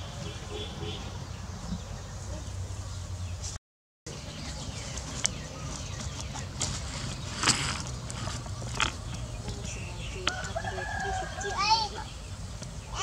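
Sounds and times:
low outdoor rumble: 0:04.1 - 0:13.0.

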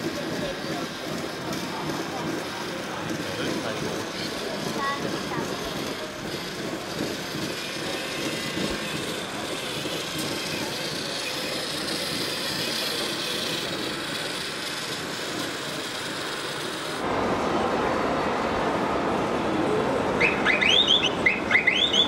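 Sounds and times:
high motor whine: 0:00.0 - 0:18.4
mechanical motor noise: 0:00.3 - 0:17.0.

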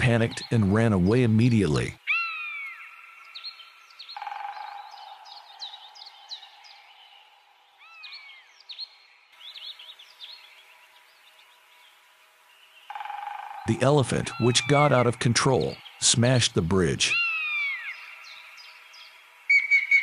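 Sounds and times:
birds chirping: 0:00.0 - 0:20.0
bird whistle: 0:19.5 - 0:20.0.

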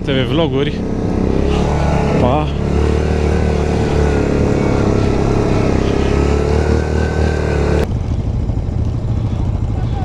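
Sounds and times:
quad bike engine running: 0:00.0 - 0:10.0.

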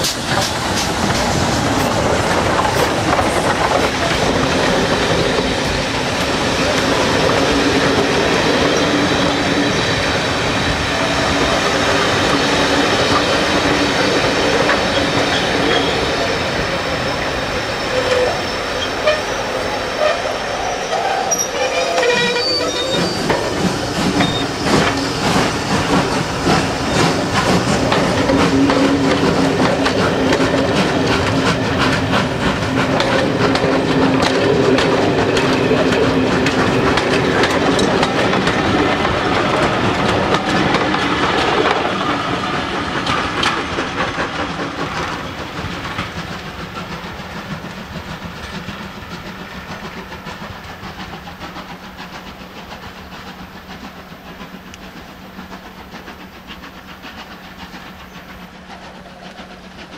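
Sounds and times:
train wheels clattering over rail joints: 0:00.0 - 0:16.4, 0:21.6 - 0:59.9.

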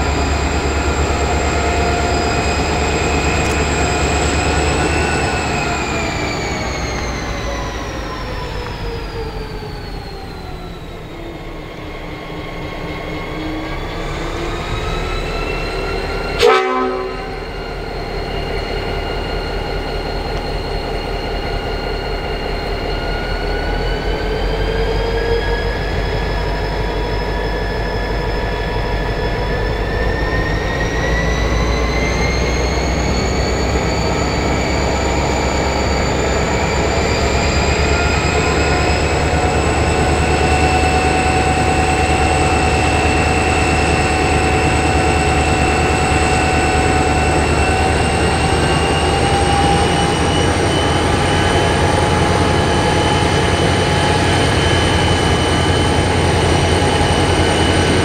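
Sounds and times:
diesel locomotive engine under load: 0:00.0 - 0:58.0
rising engine whine: 0:00.0 - 0:58.0.

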